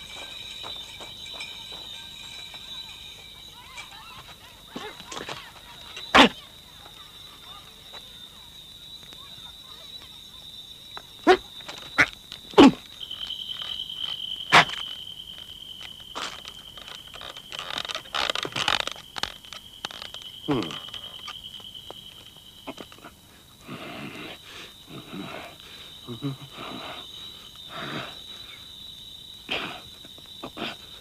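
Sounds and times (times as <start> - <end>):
breathy animal-like noises: 22.7 - 28.6.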